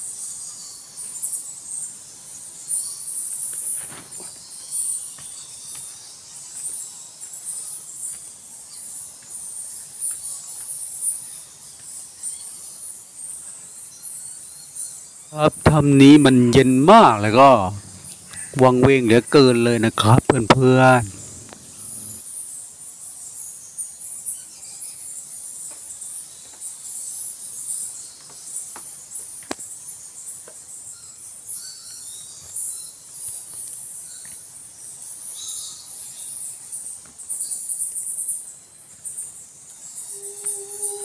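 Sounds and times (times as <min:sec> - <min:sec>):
insects chirping: 0:15.4 - 0:22.2.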